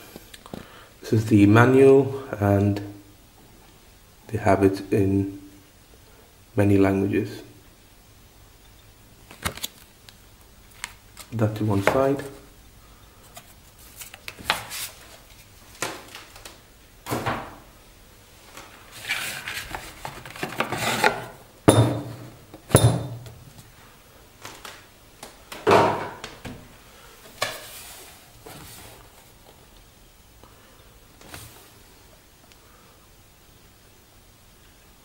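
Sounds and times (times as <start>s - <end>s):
cardboard lid sliding and rubbing: 18.9s - 21.3s.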